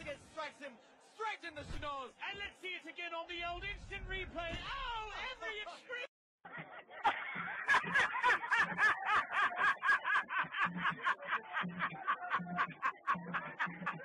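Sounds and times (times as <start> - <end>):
man laughing hard: 6.5 - 14.0.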